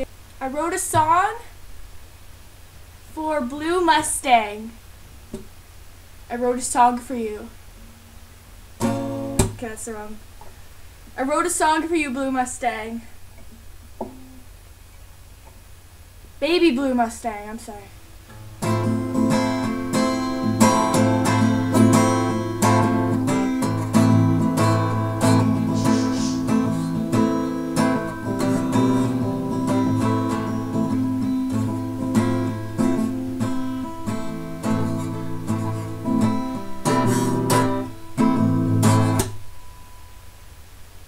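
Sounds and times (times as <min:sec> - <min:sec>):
acoustic guitar strummed chords: 0:08.8 - 0:09.9, 0:18.0 - 0:40.3.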